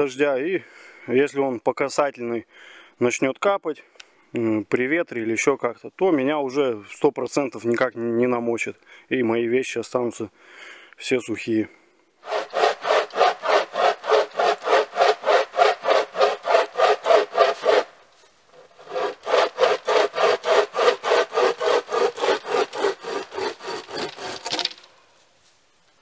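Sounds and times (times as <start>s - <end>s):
hand saw cutting wood: 12.2s - 24.9s.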